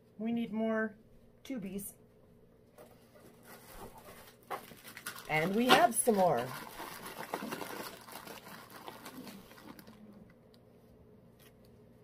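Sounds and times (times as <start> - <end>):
plastic tubes clicking and rattling: 4.5 - 10.0.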